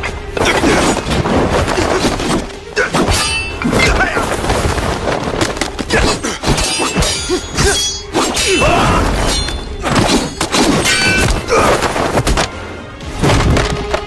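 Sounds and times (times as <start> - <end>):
metal blades clashing: 1.9 - 4.2, 5.9 - 11.6.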